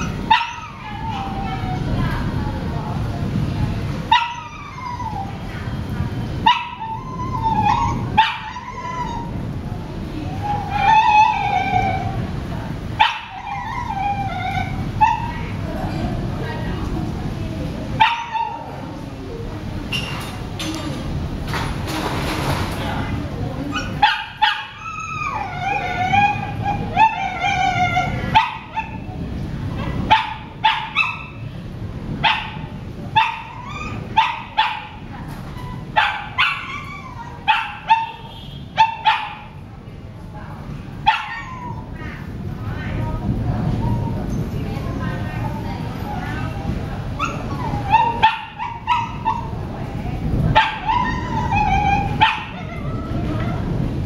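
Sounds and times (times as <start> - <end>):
low background noise: 0.0 - 54.0
dog barking: 6.5 - 7.0, 29.8 - 31.4, 32.2 - 35.0, 35.9 - 39.6, 41.0 - 41.8, 47.2 - 49.6, 50.5 - 52.9
high-pitched animal whining cries: 50.8 - 53.7.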